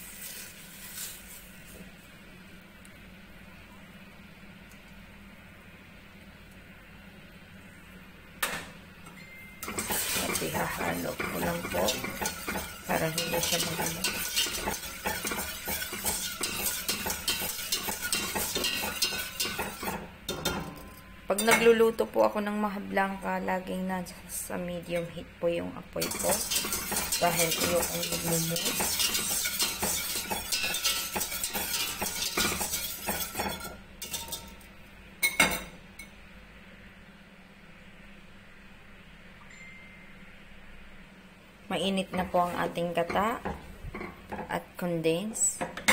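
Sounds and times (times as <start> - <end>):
whisk scraping metal pot: 9.6 - 20.6, 26.0 - 34.6.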